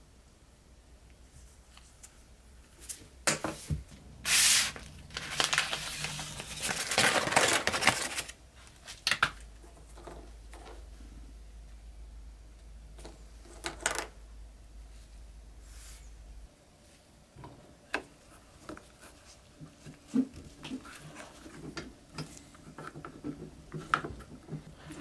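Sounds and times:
paper crinkling and rustling: 4.3s - 9.3s.

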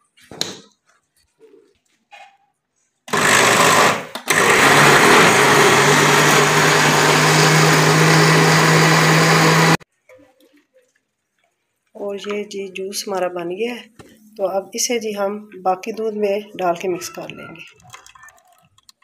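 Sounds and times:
electric blender motor: 3.1s - 9.8s.

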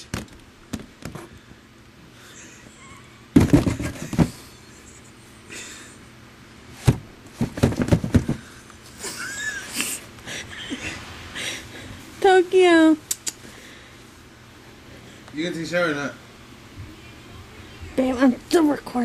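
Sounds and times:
camcorder bumps and scuffs: 3.4s - 4.4s, 6.8s - 8.4s.

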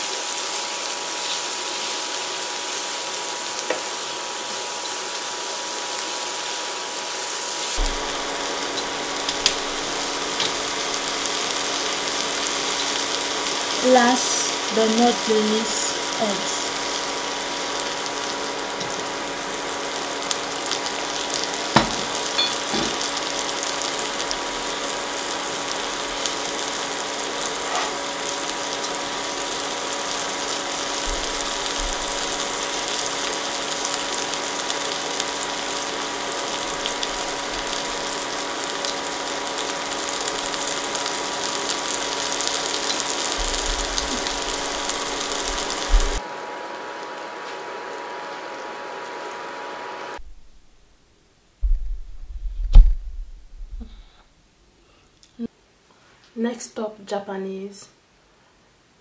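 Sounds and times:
eggs sizzling in hot oil: 0.0s - 50.2s
steady hum: 7.8s - 33.1s, 40.4s - 46.7s
sharp knocks: 21.8s - 23.0s.

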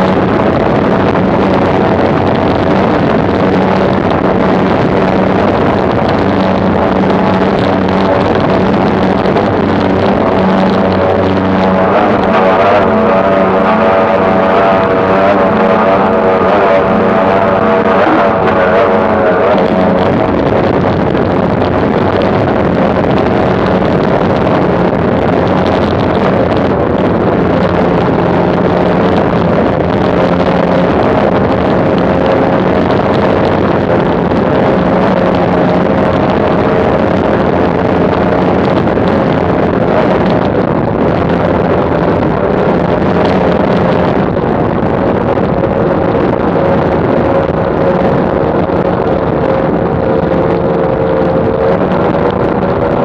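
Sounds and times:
outboard engines droning: 0.0s - 53.0s
rush of wind and spray: 0.0s - 53.0s.

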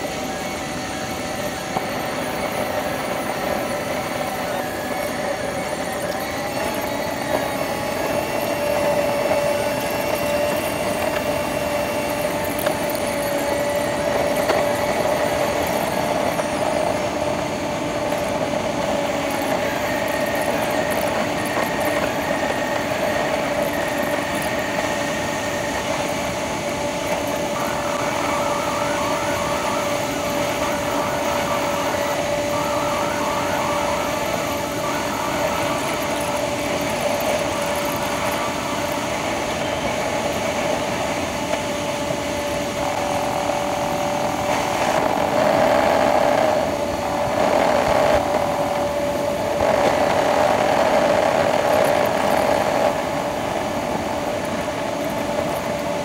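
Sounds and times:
sped-up car engine drone: 0.0s - 56.0s.

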